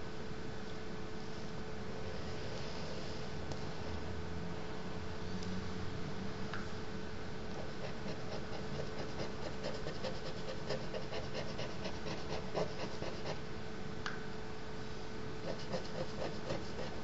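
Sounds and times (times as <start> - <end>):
faint steady hum: 0.0 - 17.0
stick scratching on paper: 7.6 - 13.4, 15.4 - 17.0.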